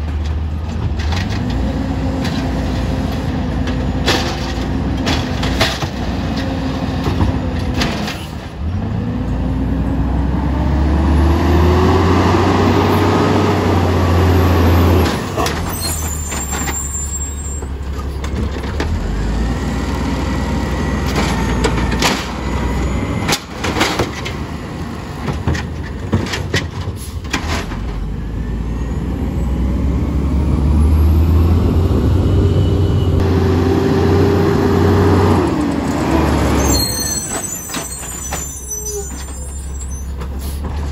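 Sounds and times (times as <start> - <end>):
garbage cart clanking and banging: 0.0 - 8.7, 14.8 - 19.2, 21.0 - 24.5, 25.1 - 28.2, 35.6 - 40.9
diesel engine revving: 0.0 - 26.1, 27.0 - 40.9.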